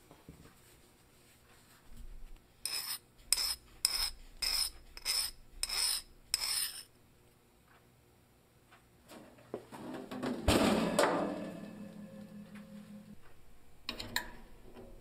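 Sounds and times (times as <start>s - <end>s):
hand file scraping steel: 2.6s - 6.9s.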